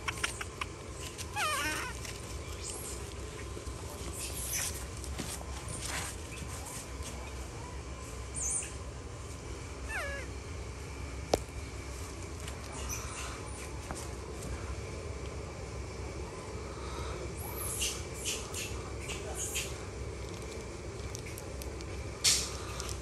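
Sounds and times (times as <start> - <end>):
baby macaque call: 1.3 - 2.0, 9.9 - 10.3.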